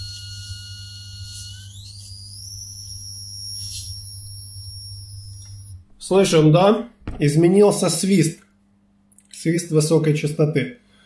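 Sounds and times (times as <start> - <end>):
high electrical whistle: 0.0 - 5.9
low electrical hum: 0.0 - 11.0.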